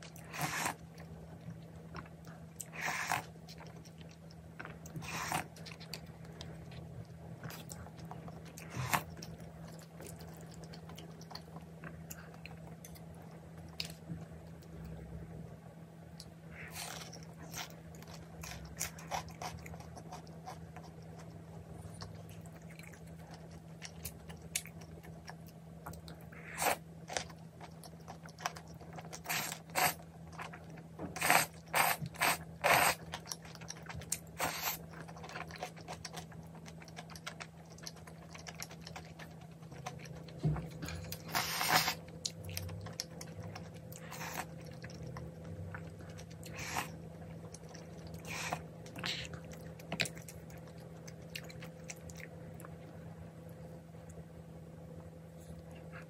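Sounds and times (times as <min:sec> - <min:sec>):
low steady hum: 0:00.0 - 0:56.0
person chewing: 0:16.1 - 0:53.0.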